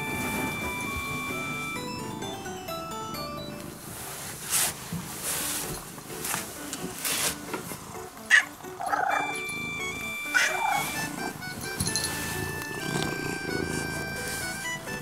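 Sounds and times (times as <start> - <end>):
fur rustling on microphone: 3.7 - 7.9, 10.4 - 11.2
cat calling: 8.3 - 11.4.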